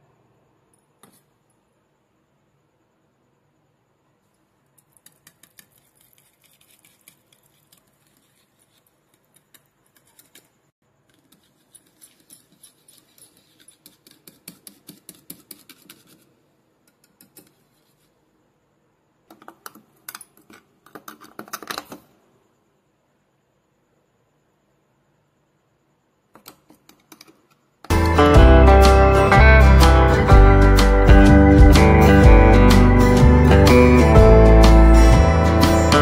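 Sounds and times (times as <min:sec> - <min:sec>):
spoon scraping plastic bowl: 0:04.8 - 0:16.4
spoon scraping steel bowl: 0:04.9 - 0:10.5, 0:11.1 - 0:16.2.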